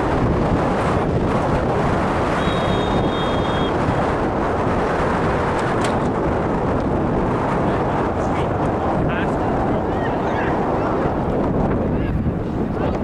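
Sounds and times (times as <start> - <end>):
wind buffeting microphone: 0.0 - 13.0
faint high steady tone: 2.4 - 3.7.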